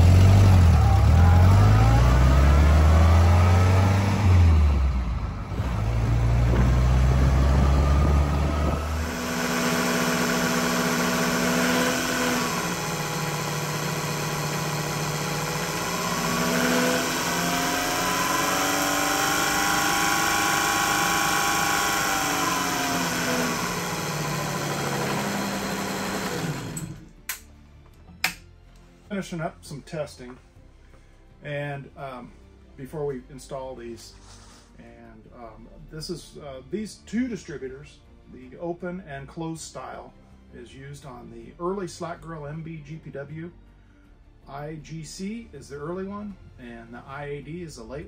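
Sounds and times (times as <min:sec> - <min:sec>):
engine revving: 0:00.0 - 0:27.2.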